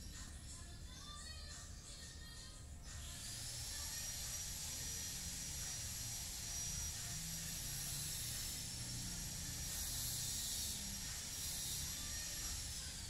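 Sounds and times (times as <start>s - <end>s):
high-pitched whining tones: 3.2s - 13.0s.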